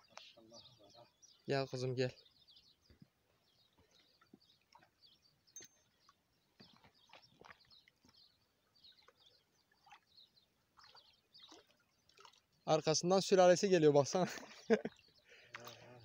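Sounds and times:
faint bird chirps: 0:00.0 - 0:12.2.

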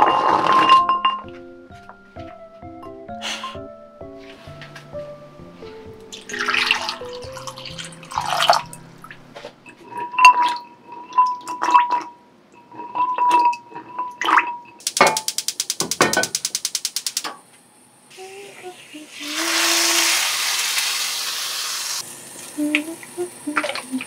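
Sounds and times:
water sloshing in glass bowl: 0:06.1 - 0:14.8
gas stove igniter clicking: 0:14.8 - 0:17.4.

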